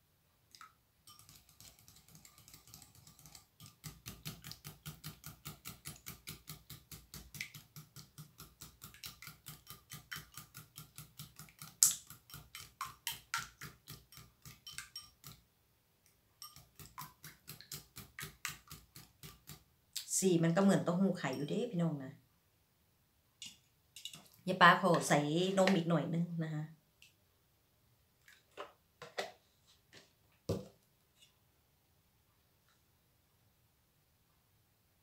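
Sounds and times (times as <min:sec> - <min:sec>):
whisk clicking against bowl: 0:01.1 - 0:15.4, 0:16.4 - 0:19.6, 0:21.3 - 0:21.6.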